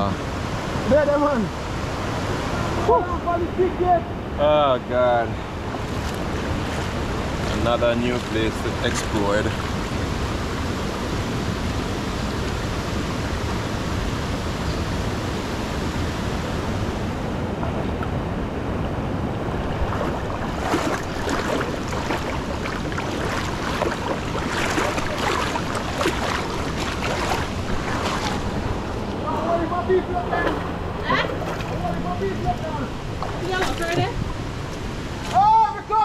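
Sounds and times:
river running over rocks: 0:00.0 - 0:36.0
people wading splashing: 0:05.6 - 0:10.2, 0:19.5 - 0:35.4.

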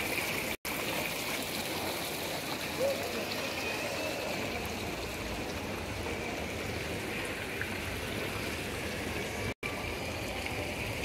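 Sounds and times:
outdoor ambience hiss: 0:00.0 - 0:11.0.

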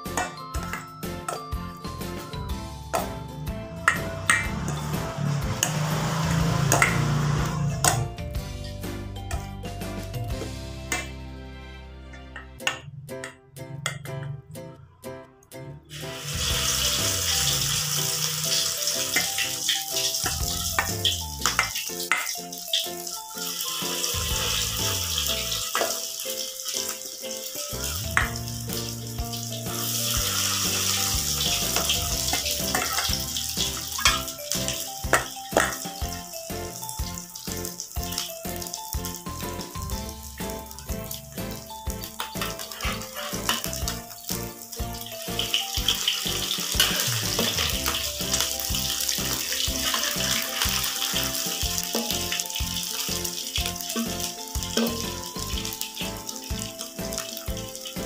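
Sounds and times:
background music with held tones: 0:00.0 - 0:58.0
fritters sizzling in oil: 0:03.0 - 0:08.7, 0:15.9 - 0:58.0.

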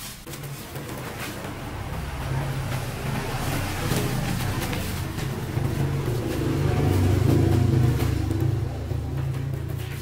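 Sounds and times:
background music with drums: 0:00.0 - 0:10.0
low bass line: 0:02.0 - 0:10.0.

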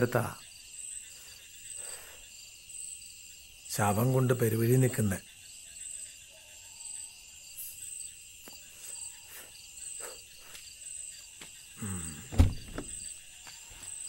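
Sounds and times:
crickets chirping: 0:00.0 - 0:14.0
loud thump: 0:12.3 - 0:13.1.

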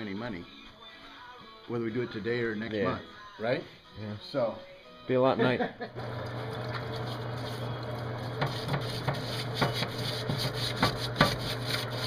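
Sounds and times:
scrubbing greasy metal: 0:06.4 - 0:12.0.

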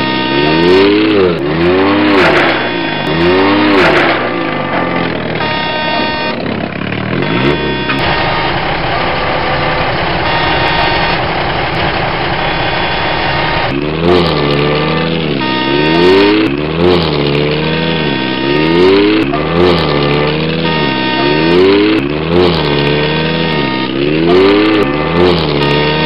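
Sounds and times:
truck engine revving: 0:00.0 - 0:26.0.

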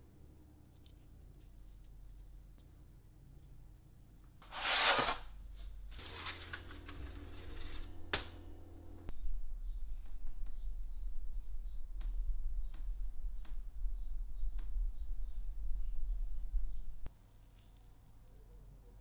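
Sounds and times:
rustling scrape: 0:04.4 - 0:08.6
steady low hum: 0:05.8 - 0:17.1.

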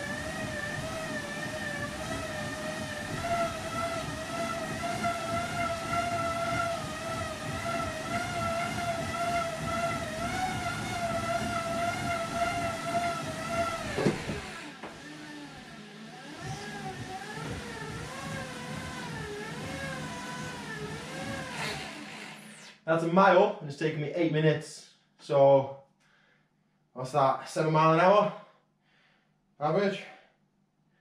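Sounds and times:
cycling rollers whining: 0:00.0 - 0:22.8.

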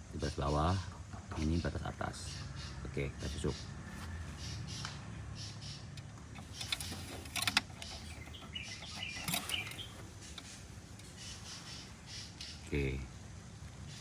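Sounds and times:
birds chirping: 0:00.0 - 0:14.0
sharp clicks: 0:05.6 - 0:11.4.

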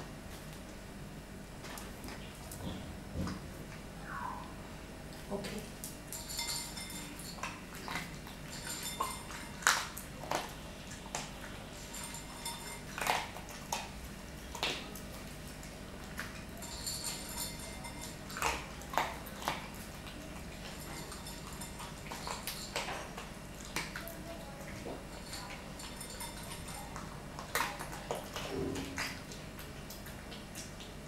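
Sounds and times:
dog crunching food: 0:05.8 - 0:31.0.

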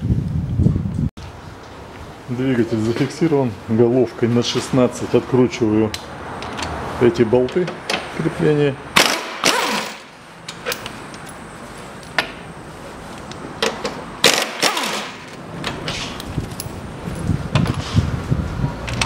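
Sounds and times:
air impact wrench: 0:09.0 - 0:10.8, 0:14.2 - 0:16.1.

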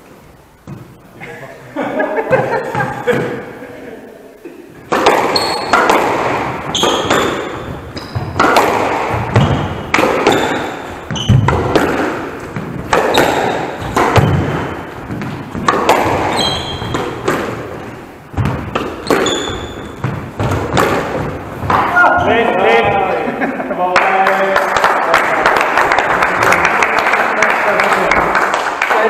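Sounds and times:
squash ball hits echoing: 0:04.8 - 0:23.3
shoes squeaking on floor: 0:05.0 - 0:23.0.

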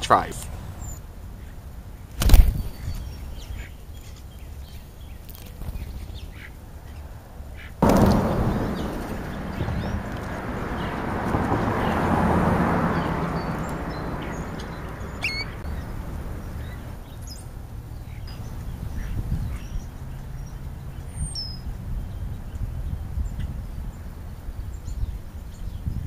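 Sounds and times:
bird calls: 0:00.0 - 0:01.6, 0:02.2 - 0:23.8
low rumble: 0:07.8 - 0:17.0
rushing noise: 0:07.8 - 0:17.0.

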